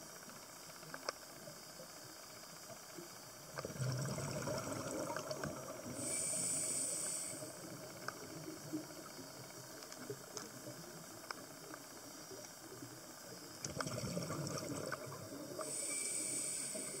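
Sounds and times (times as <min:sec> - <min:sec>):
faint clicks: 0:00.2 - 0:01.5, 0:07.0 - 0:14.0
underwater hiss: 0:02.9 - 0:17.0
bubbling rush: 0:03.6 - 0:06.0, 0:13.6 - 0:15.8
breath through regulator: 0:03.6 - 0:08.0, 0:13.7 - 0:17.0.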